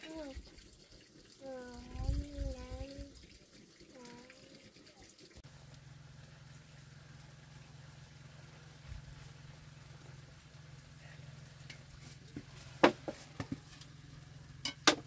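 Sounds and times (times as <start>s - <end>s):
low steady hum: 5.4s - 15.0s
utensil clinking against pot: 14.6s - 15.0s.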